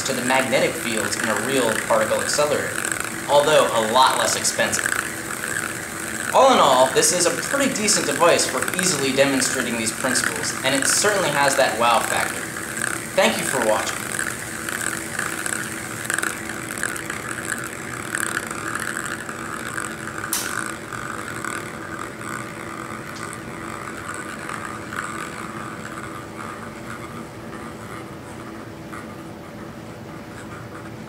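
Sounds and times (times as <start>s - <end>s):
ping pong ball rolling in bowl: 0.0s - 31.0s
steady hum: 0.0s - 31.0s
sharp click: 20.3s - 20.6s.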